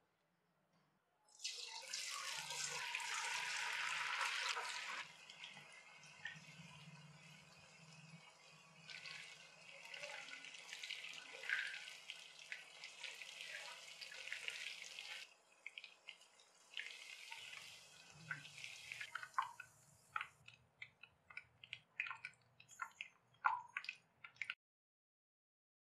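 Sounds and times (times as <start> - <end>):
chicken deep-frying in oil: 1.3 - 24.6
oil pops and drips: 18.2 - 24.6.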